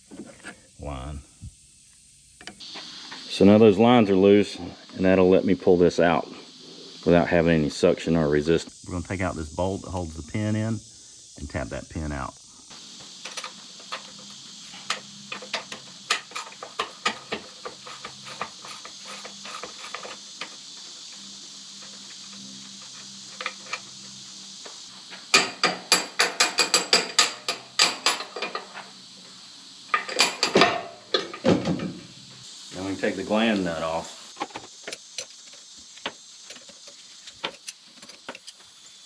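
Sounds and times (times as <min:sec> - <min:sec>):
metal clicking and tapping: 0:25.3 - 0:28.7.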